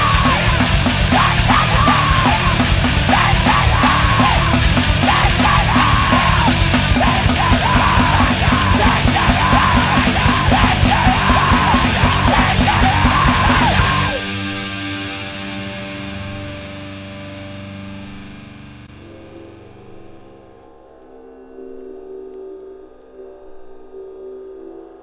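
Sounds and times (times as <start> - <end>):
screamed vocals: 0.0 - 14.4
fast driving drums: 0.0 - 18.7
guitar ringing: 0.0 - 21.0
distorted guitars: 0.0 - 25.0.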